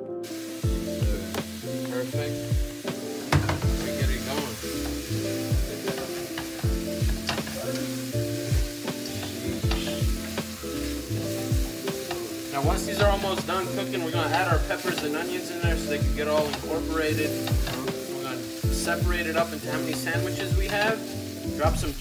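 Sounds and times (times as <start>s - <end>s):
beef sizzling in a frying pan: 0.2s - 22.0s
background music with bass kicks: 0.3s - 22.0s
metal tongs on pan: 3.3s - 8.1s, 8.7s - 12.6s, 13.2s - 15.6s, 16.2s - 18.6s, 19.4s - 21.2s.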